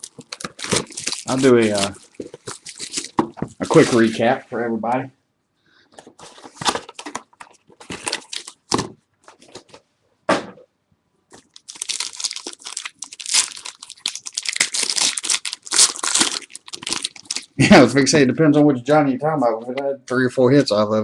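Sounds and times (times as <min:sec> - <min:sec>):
foil tearing open: 0:00.0 - 0:03.2, 0:07.8 - 0:08.7, 0:11.4 - 0:17.6
foil wrapper rustling and crinkling: 0:00.0 - 0:04.2, 0:06.3 - 0:09.6, 0:11.4 - 0:17.6.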